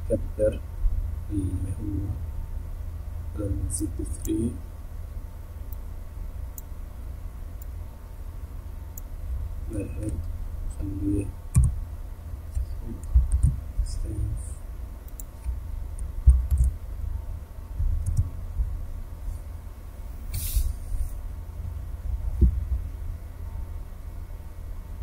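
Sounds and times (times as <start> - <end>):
steady low hum: 0.0 - 25.0
short hiss: 20.3 - 21.1.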